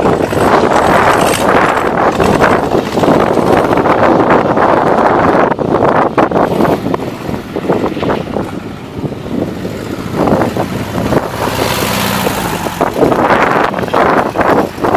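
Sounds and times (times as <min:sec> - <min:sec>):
wind gusting on microphone: 0:00.0 - 0:14.9
helicopter flying past: 0:06.4 - 0:14.9.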